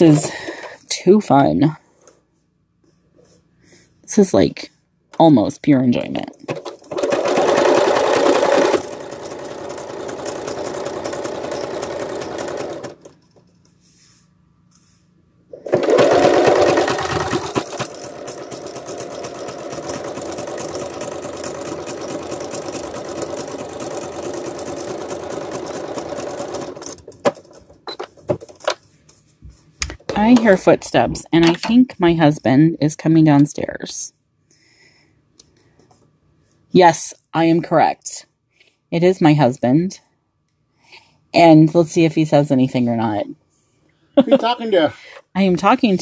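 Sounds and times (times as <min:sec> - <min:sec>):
electric sewing machine running: 0:06.5 - 0:13.2, 0:15.5 - 0:27.8.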